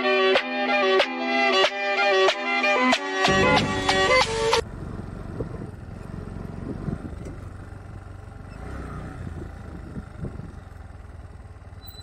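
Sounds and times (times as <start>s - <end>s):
motorcycle engine running: 3.3s - 12.0s.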